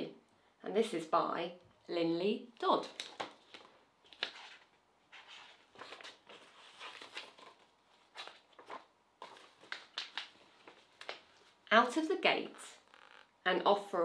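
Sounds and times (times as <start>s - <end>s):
book pages turning: 2.8s - 11.6s
paper and cover clicks: 5.8s - 11.2s.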